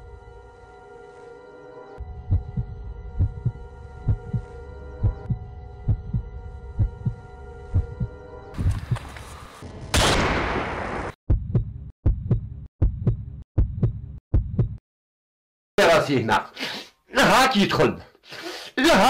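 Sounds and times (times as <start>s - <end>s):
held drone chord: 0.0s - 8.6s
heartbeat thumps: 2.1s - 9.1s, 11.3s - 14.8s.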